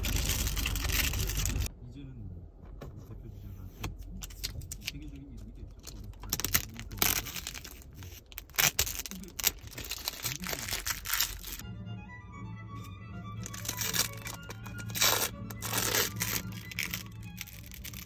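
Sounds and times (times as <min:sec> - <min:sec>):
plastic film crinkling and tearing: 0:00.0 - 0:01.7, 0:05.8 - 0:11.6, 0:13.4 - 0:18.0
background music: 0:11.0 - 0:18.0.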